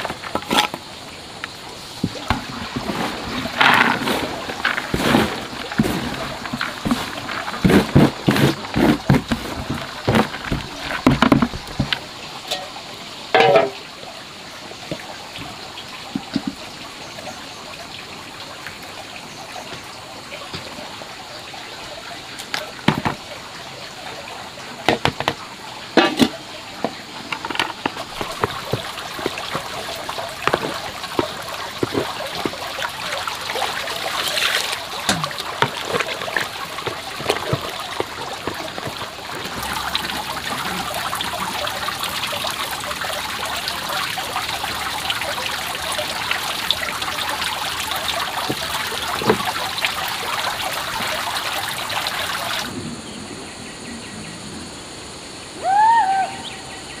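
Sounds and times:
water trickling: 0.0 - 52.8
knocks and clatter: 3.6 - 13.8, 22.8 - 23.3, 24.8 - 25.4.

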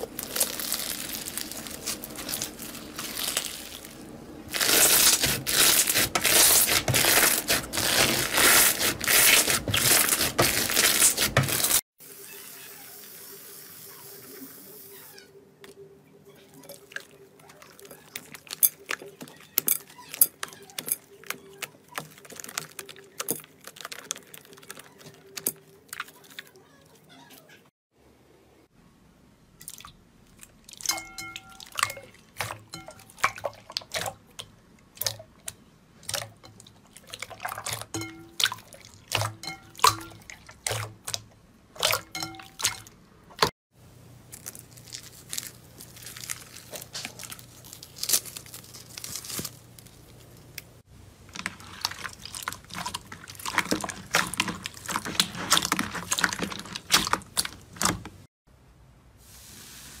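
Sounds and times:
foam beads crunching in slime: 0.0 - 11.8, 21.9 - 26.4, 44.3 - 50.2
hands squeezing wet slime: 0.0 - 11.8, 16.6 - 26.6, 29.6 - 43.0, 44.3 - 50.7, 51.3 - 58.3.

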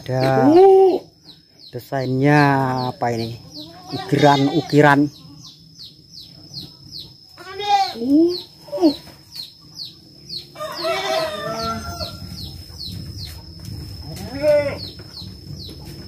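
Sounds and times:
chickens clucking: 0.0 - 16.0
rooster crowing: 10.5 - 12.6.

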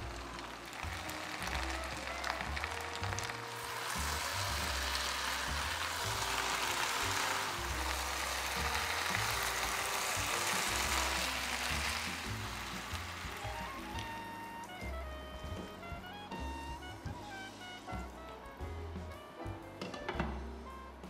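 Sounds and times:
food sizzling in frying pan: 0.0 - 14.8
background music: 0.0 - 21.0.

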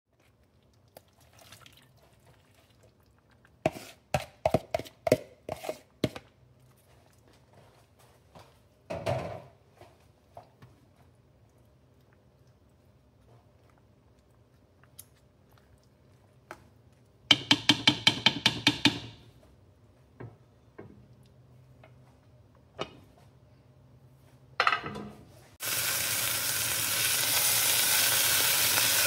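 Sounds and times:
spatula scraping bowl: 3.6 - 6.9
spatula knocking against bowl: 17.3 - 19.2.

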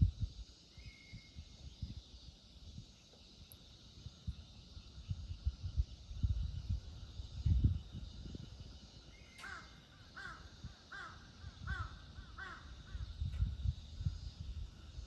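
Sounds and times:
low rumbling on microphone: 4.2 - 8.6, 12.8 - 15.0
crow cawing: 9.4 - 13.0.

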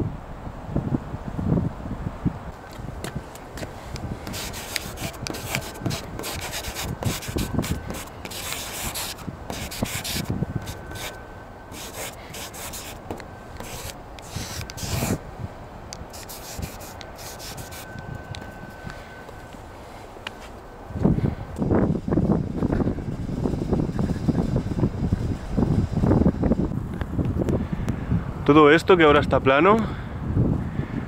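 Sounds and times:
marker scraping on hard surface: 3.1 - 15.2, 16.1 - 18.5.

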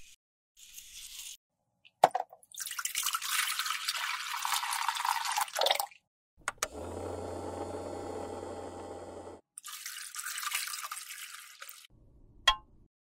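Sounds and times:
water pouring and splashing: 2.4 - 6.0, 9.6 - 11.9
clicks: 6.4 - 6.8
ultrasonic cleaner humming: 6.4 - 9.4.

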